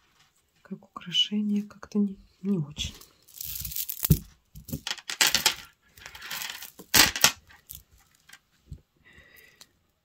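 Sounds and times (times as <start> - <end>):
metal jewellery jingling: 3.3 - 4.2.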